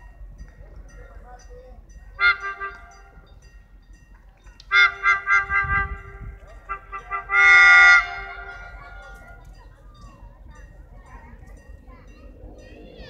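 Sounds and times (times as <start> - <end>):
locomotive horn toots and blast: 2.2 - 3.3, 4.6 - 9.4.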